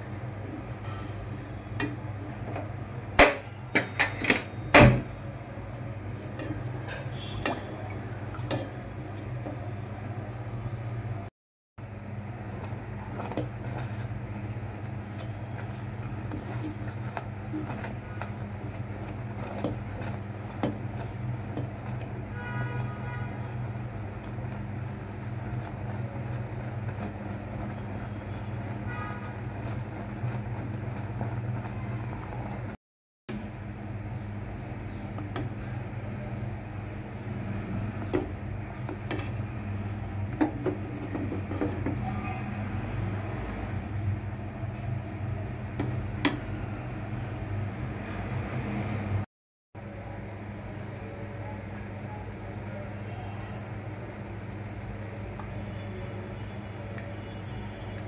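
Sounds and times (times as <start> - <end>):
spatula stirring in metal pot: 12.4 - 32.8.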